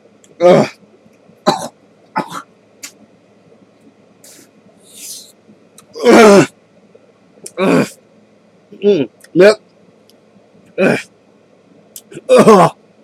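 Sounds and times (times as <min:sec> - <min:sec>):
man coughing and gagging: 0:01.4 - 0:02.5, 0:06.0 - 0:06.5, 0:12.1 - 0:12.8.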